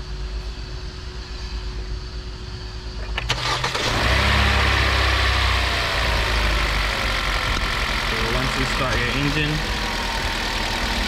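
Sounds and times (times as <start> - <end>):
car engine idling: 3.0 - 11.0
starter motor cranking: 3.2 - 4.2.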